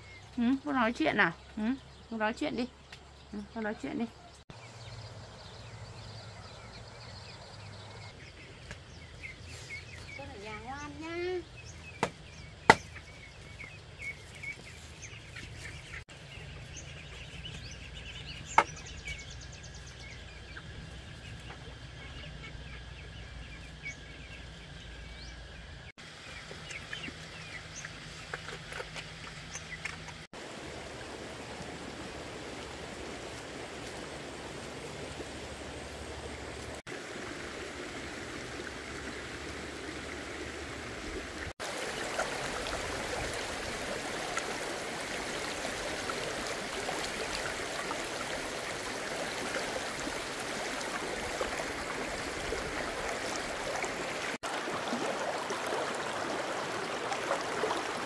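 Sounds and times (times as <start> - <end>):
small birds chirping: 0.0 - 30.3
running stream water: 0.0 - 58.0.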